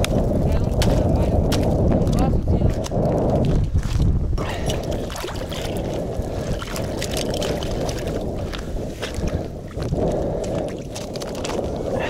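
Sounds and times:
wind on microphone: 0.0s - 12.0s
ice crunching and knocking: 0.7s - 2.2s
water sloshing: 4.4s - 11.9s.

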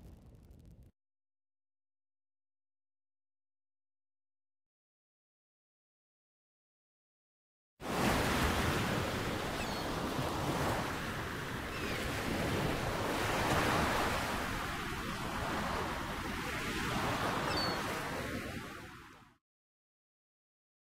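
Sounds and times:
steady rushing noise: 0.0s - 0.9s.

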